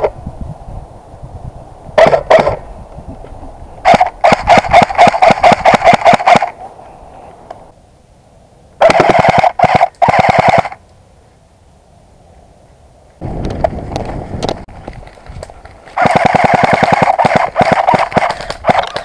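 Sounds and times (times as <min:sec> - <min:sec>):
airsoft rifle firing: 0:03.9 - 0:06.5, 0:08.8 - 0:10.8, 0:16.0 - 0:19.0.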